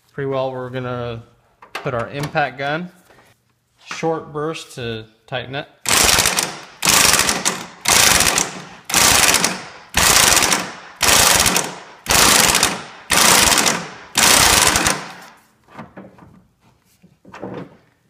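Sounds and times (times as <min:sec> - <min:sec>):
impact wrench hammering: 0:05.8 - 0:15.4.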